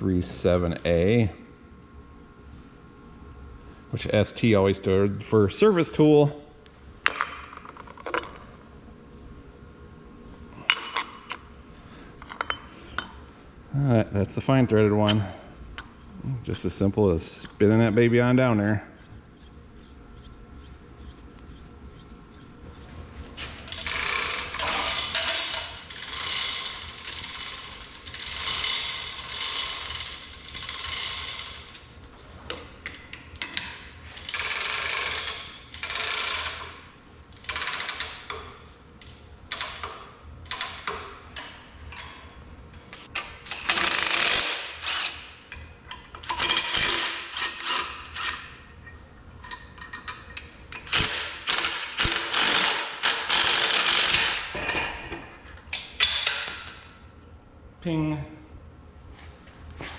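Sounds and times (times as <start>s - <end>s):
ratcheting geared mechanical noise: 18.6s - 23.0s, 23.7s - 31.9s, 34.1s - 36.8s, 37.4s - 38.4s, 43.4s - 45.3s, 46.2s - 48.4s, 49.4s - 54.5s.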